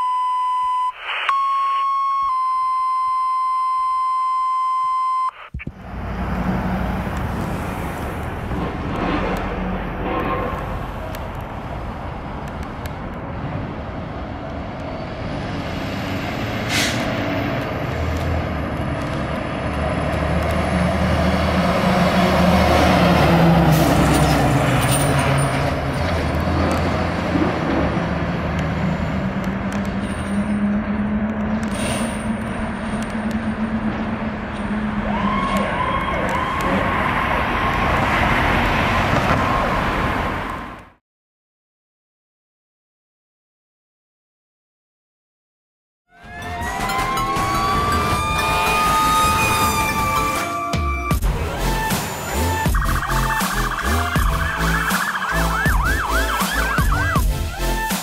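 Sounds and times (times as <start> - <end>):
steady beep: 0.0 - 5.5
two-tone pager tones: 0.0 - 5.5
radio static: 0.9 - 1.4, 5.3 - 5.8, 52.7 - 57.3
street noise: 5.2 - 41.0, 46.1 - 58.0
fire engine driving past: 5.8 - 40.8, 46.2 - 57.8.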